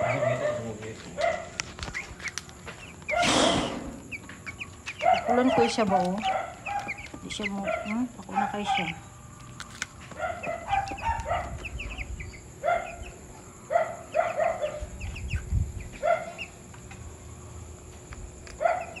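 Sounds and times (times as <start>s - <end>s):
chicks cheeping: 0.0s - 19.0s.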